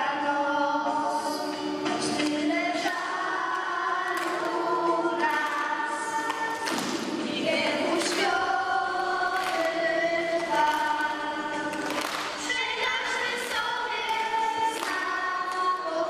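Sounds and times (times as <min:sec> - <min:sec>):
choir singing: 0:00.0 - 0:16.0.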